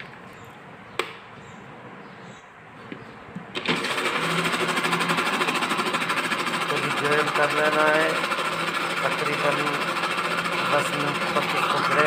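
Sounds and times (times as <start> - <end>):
sharp click: 1.0 - 1.2
blender motor running: 3.6 - 12.0.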